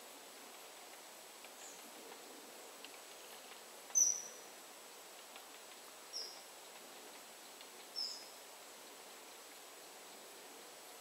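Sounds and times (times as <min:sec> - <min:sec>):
faint background hiss: 0:00.0 - 0:11.0
woodpecker short high calls: 0:03.9 - 0:04.4.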